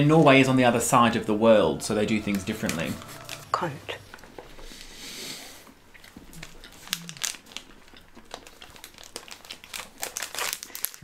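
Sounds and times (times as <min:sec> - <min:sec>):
snack wrapper crinkling: 0:02.2 - 0:03.5, 0:05.9 - 0:11.0.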